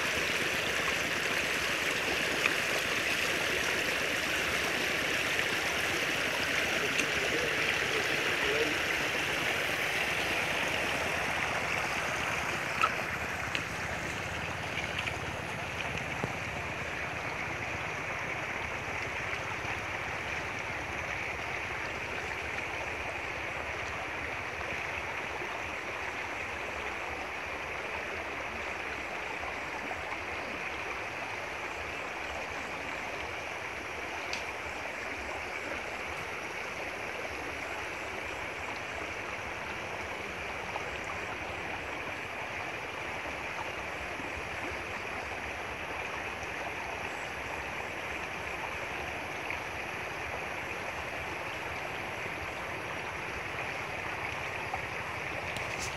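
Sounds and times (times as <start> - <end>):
water rushing in a creek: 0.0 - 55.9
faint clicks: 12.5 - 16.4, 34.2 - 34.6.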